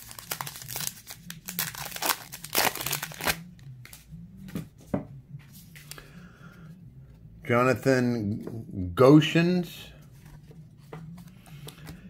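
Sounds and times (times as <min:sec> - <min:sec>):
foil wrapper crinkling and tearing: 0:00.0 - 0:04.0.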